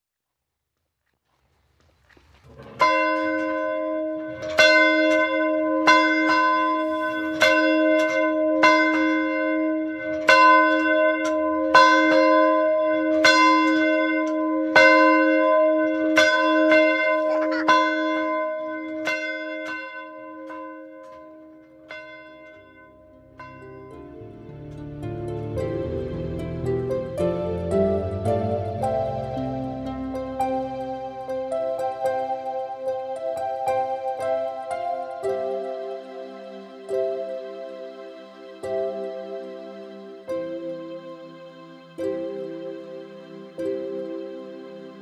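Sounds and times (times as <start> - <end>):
church bell tolling: 2.7 - 37.8.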